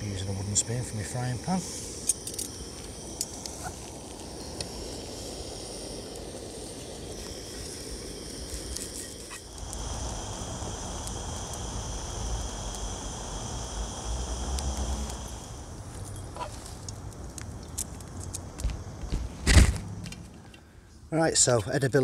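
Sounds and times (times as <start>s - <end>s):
plants frying in oil: 0.0s - 19.1s
gas stove rush: 0.8s - 16.9s.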